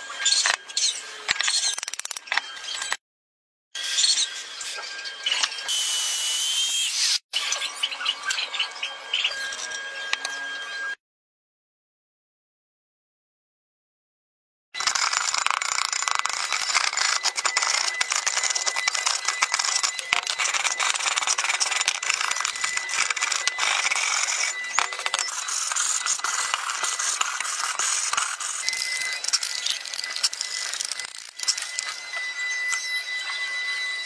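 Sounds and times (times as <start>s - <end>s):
screwdriver scraping rusted metal: 0.3s - 3.0s, 14.8s - 32.1s.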